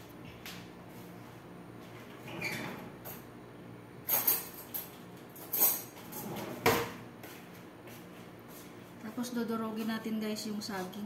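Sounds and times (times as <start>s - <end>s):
kitchen utensils rattling: 4.1s - 6.6s.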